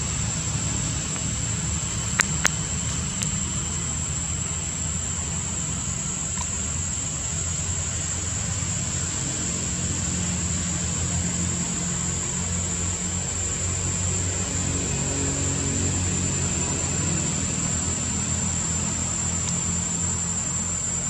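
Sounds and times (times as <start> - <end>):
high thin whine: 0.0 - 21.0
sharp clicks: 2.1 - 3.4.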